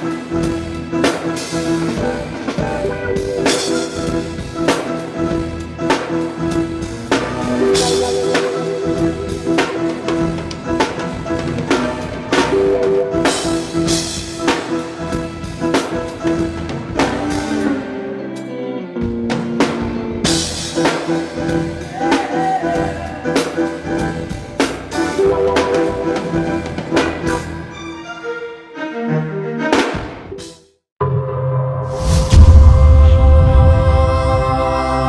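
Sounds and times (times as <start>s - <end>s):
drum kit playing: 0.0s - 27.7s
held keyboard chords: 0.0s - 31.8s.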